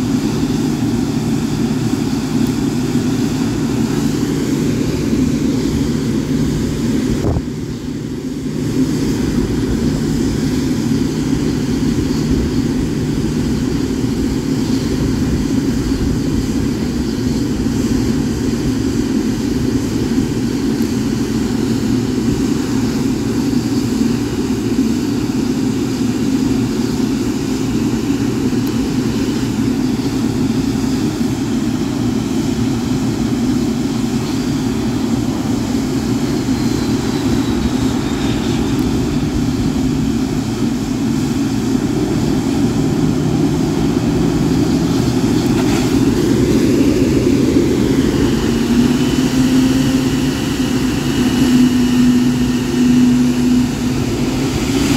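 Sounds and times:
faint high engine whine: 0:00.0 - 0:54.9
jet engines rumbling: 0:00.0 - 0:54.9.

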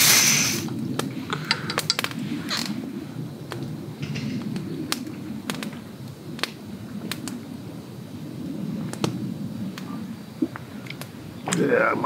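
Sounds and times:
campfire crackling and popping: 0:00.0 - 0:12.0
steady low noise: 0:00.0 - 0:12.0.

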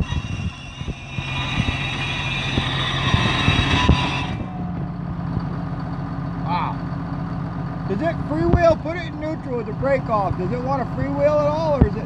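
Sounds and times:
wheel screeching: 0:00.0 - 0:05.4
diesel engine running: 0:00.0 - 0:12.0.

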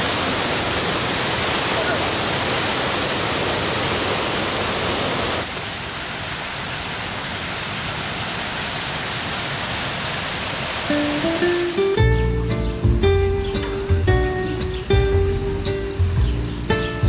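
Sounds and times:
fountain water splashing: 0:00.0 - 0:12.4
music: 0:10.9 - 0:17.0.

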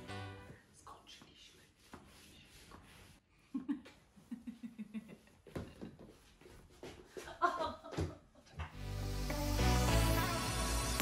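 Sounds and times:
woman laughing quietly: 0:03.3 - 0:06.3.

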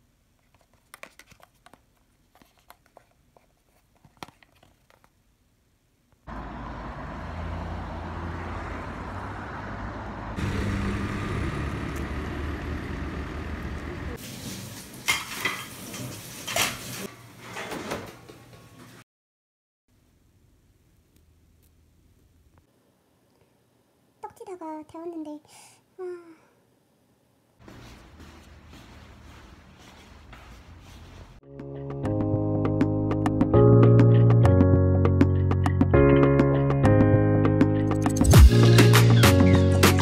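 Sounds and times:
low traffic rumble: 0:06.3 - 0:14.2.

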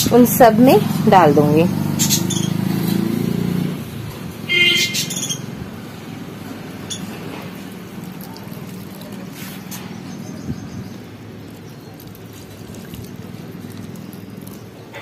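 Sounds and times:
liquid trickling into soil: 0:06.2 - 0:15.0.

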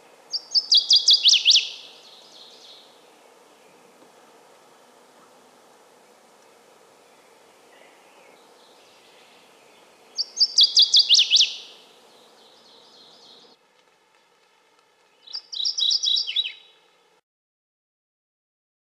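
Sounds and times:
bird singing rapid sharp notes: 0:00.3 - 0:02.8, 0:08.2 - 0:13.6, 0:15.1 - 0:16.8.

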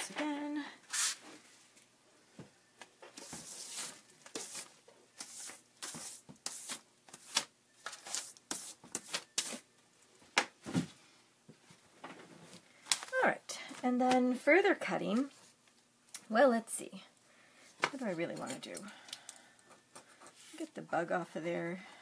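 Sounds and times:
hand brush sweeping tabletop: 0:00.9 - 0:01.4, 0:03.2 - 0:07.4, 0:08.0 - 0:09.6.

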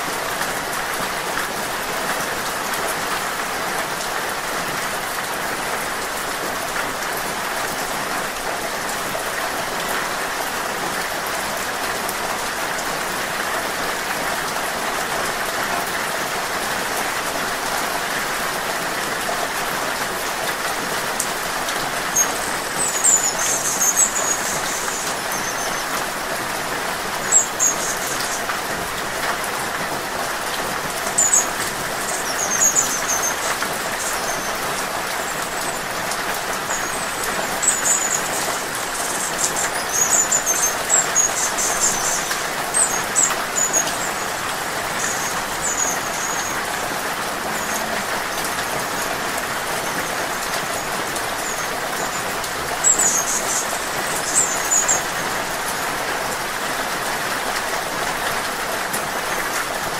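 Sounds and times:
rain falling: 0:00.0 - 0:59.9
hummingbird chirping: 0:22.1 - 0:26.0, 0:27.2 - 0:28.5, 0:31.1 - 0:49.2, 0:51.4 - 0:55.3.

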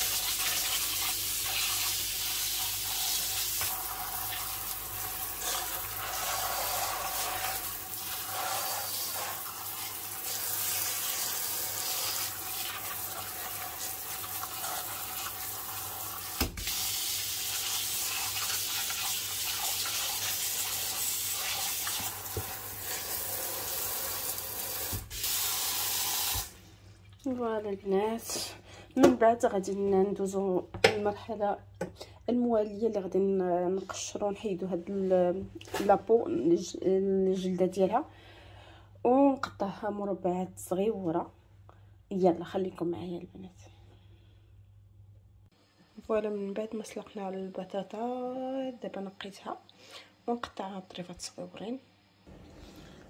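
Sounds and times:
tap water splashing on potatoes: 0:00.0 - 0:06.0, 0:09.1 - 0:23.2, 0:24.1 - 0:25.5.

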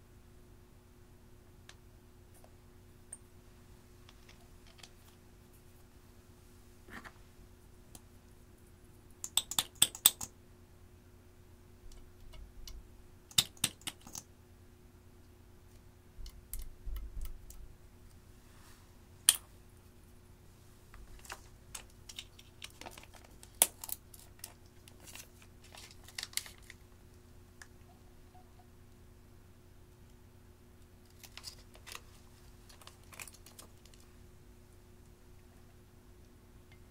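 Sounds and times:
plastic packaging clicks: 0:21.2 - 0:26.8, 0:32.7 - 0:34.0.

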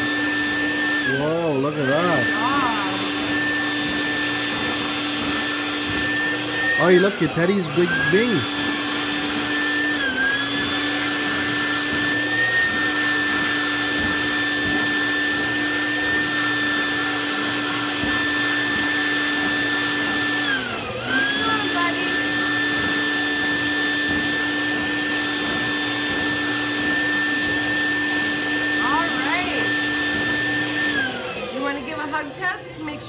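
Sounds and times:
stuffing machine blower whine: 0:00.0 - 0:33.0.

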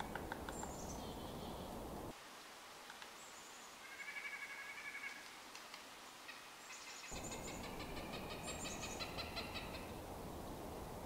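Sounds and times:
background hiss and low rumble: 0:00.0 - 0:11.0
wild birds calling: 0:06.3 - 0:10.0.

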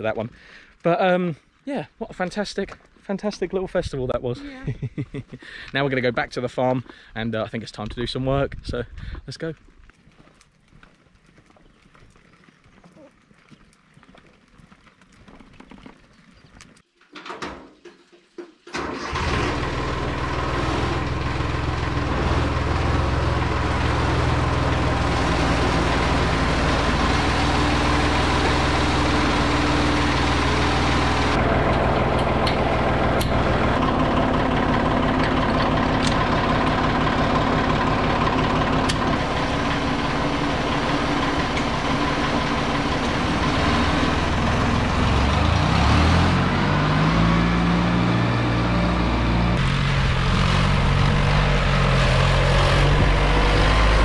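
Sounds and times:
vehicle engine running: 0:19.2 - 0:54.0.

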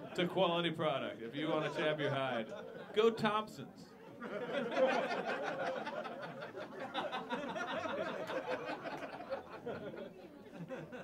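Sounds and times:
audience laughing: 0:04.1 - 0:11.0.

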